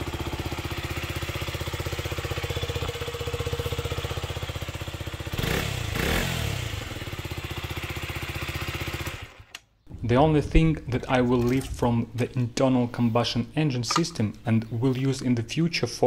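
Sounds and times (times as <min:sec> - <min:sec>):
motorcycle engine idling and revving: 0:00.0 - 0:09.7.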